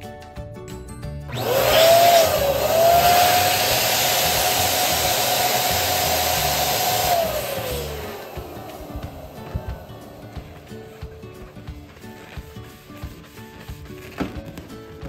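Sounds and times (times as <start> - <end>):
balloon pump motor whine: 1.3 - 12.5.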